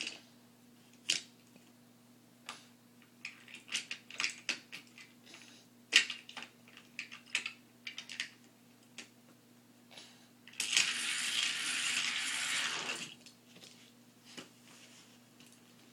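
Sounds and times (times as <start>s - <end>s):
toy car rattling down plastic track: 10.6s - 13.2s.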